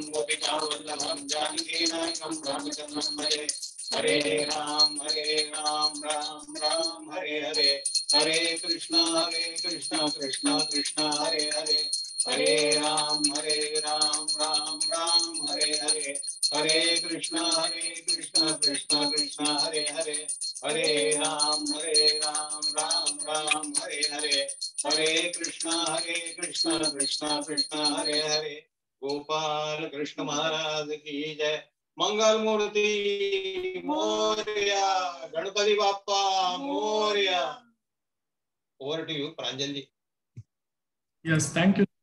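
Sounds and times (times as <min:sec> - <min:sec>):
high-pitched ringing: 0:00.0 - 0:28.4
man singing devotional song: 0:00.0 - 0:37.6.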